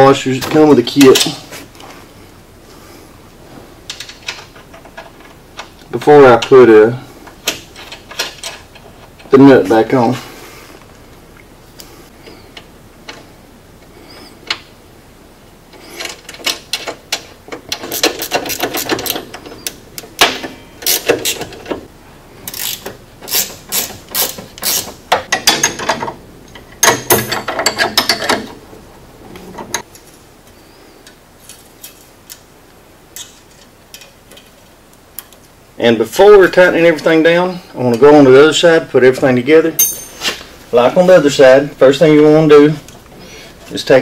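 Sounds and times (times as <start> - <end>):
handling of metal parts: 7.2 - 10.2, 15.8 - 28.7, 31.4 - 32.4, 39.8 - 40.6
ratchet wrench clicking: 22.5 - 24.9.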